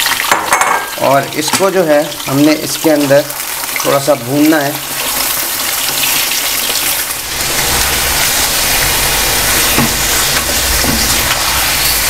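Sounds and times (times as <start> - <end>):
meat sizzling in hot fat: 0.0 - 12.0
low rumble: 7.1 - 11.4.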